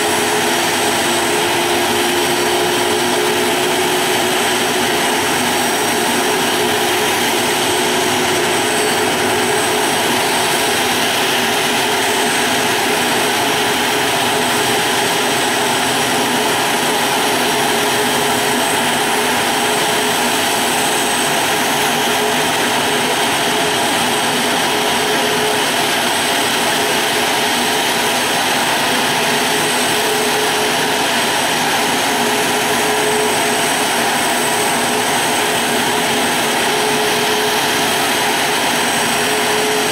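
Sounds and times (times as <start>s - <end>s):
jet engines whining: 0.0s - 39.9s
rush of jet noise: 0.0s - 39.9s.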